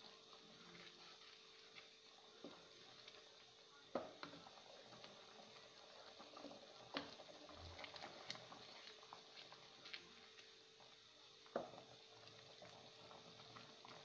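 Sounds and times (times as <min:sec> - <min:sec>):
soup bubbling: 0:00.0 - 0:14.0.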